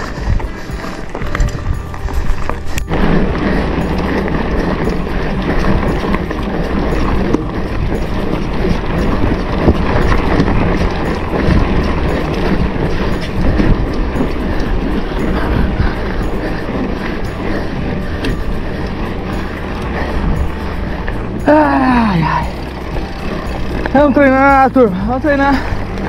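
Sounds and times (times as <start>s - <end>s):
bike tyres rattling on dirt: 0.0s - 26.0s
wind buffeting microphone: 0.0s - 26.0s.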